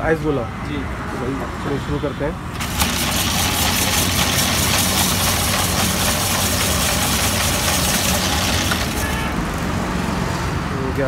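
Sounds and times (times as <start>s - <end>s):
ice shaving machine grating: 2.6s - 9.6s.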